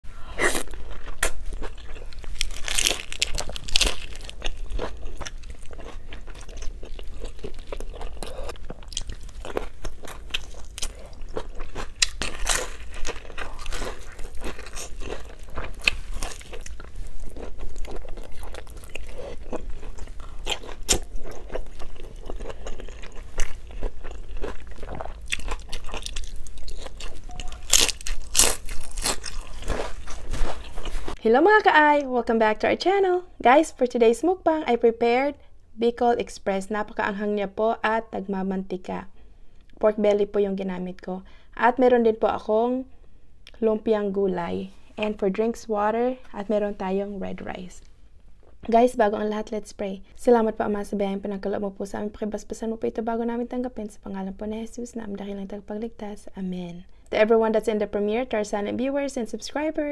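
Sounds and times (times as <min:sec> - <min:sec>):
person chewing crunchy food: 0:00.2 - 0:31.2.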